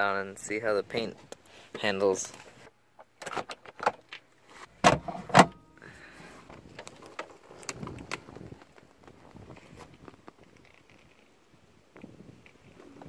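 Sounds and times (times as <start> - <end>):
latches clacking open: 3.0 - 4.2
vinyl top rustling and creaking: 6.2 - 13.0.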